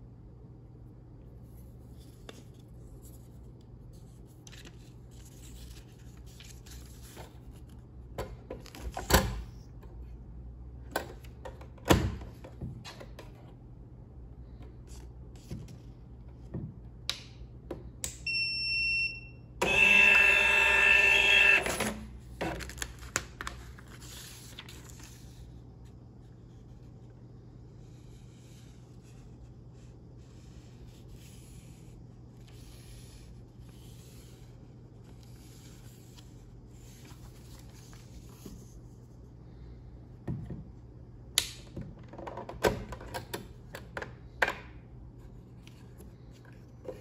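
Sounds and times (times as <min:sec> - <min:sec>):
handling clicks and paper rustling: 0:01.6 - 0:09.6, 0:21.2 - 0:25.5
printer mechanism whirring: 0:19.6 - 0:22.1.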